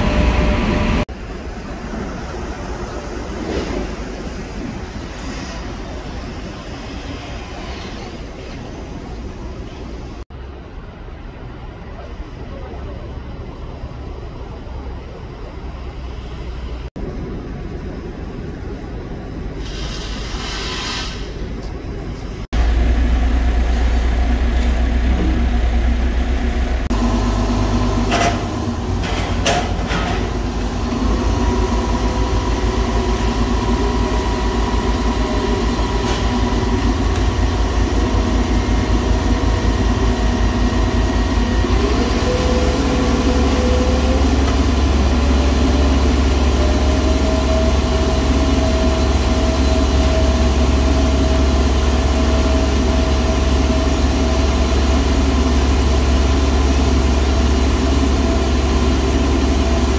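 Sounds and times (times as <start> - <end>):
crane engine throbbing: 22.6 - 59.9
rising whine: 30.6 - 59.9.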